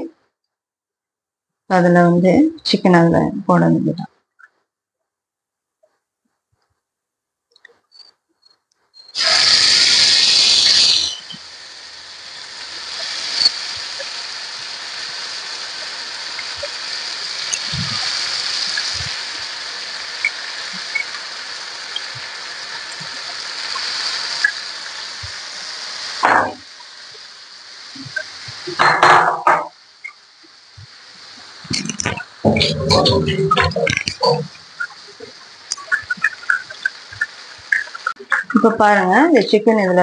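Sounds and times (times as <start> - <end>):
chicken sizzling in hot oil: 9.1 - 39.0.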